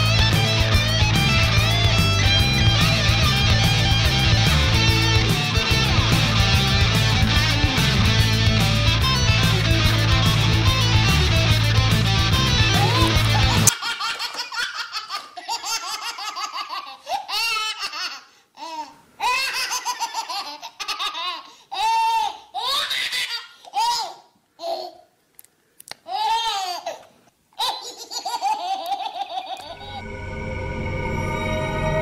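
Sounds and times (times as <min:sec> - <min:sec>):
music: 0:00.0 - 0:13.7, 0:29.8 - 0:32.0
children laughing and giggling: 0:12.6 - 0:18.3, 0:19.2 - 0:21.5, 0:27.6 - 0:30.0.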